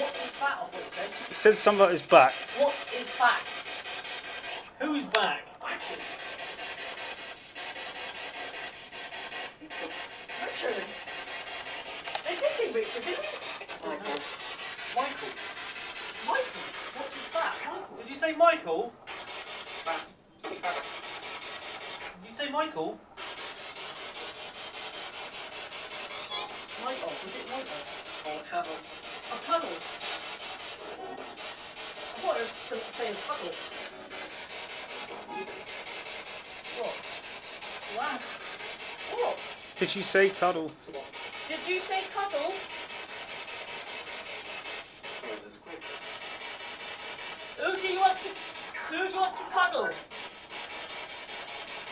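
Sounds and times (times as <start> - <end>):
radio static scanning: 0.0 - 3.4, 9.6 - 15.4, 39.0 - 42.4
voice-like radio snatches: 0.0 - 3.5, 4.9 - 6.3, 9.6 - 17.8, 19.1 - 22.2, 36.4 - 42.7, 44.0 - 50.4
pulsing radio static hiss: 0.0 - 4.0, 9.5 - 18.3, 19.3 - 50.8.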